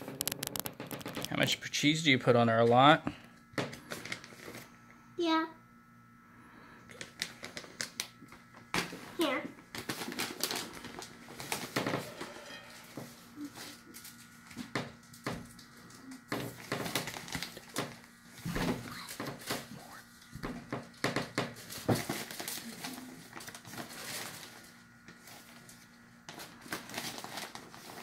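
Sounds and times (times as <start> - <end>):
plastic bag crinkling: 0.0 - 1.4, 7.0 - 14.4, 15.1 - 18.2, 21.0 - 28.0.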